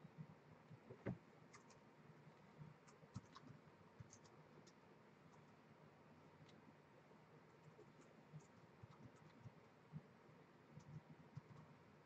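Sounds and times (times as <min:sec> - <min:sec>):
computer keyboard typing: 0:01.5 - 0:01.8, 0:02.8 - 0:04.8, 0:08.0 - 0:09.6, 0:10.8 - 0:11.7.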